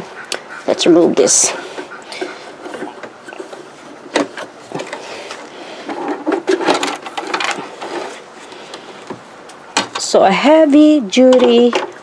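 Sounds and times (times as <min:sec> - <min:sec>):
fabric rustling and scraping: 0:01.8 - 0:09.0.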